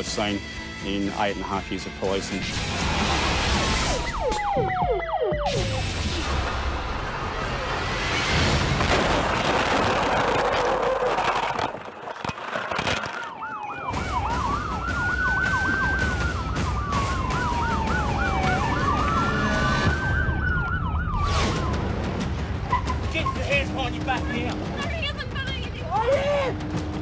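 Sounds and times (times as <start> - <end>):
siren wailing: 3.6 - 6.8, 13.0 - 22.1
siren yelping: 3.7 - 6.0, 13.2 - 21.9
car crash: 5.6 - 13.4.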